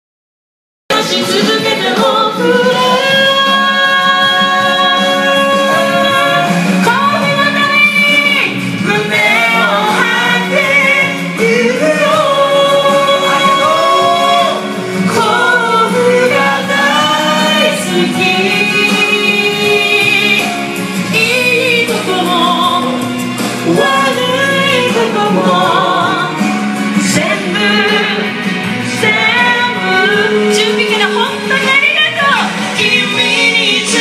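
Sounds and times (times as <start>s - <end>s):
group of people singing: 0.9s - 34.0s.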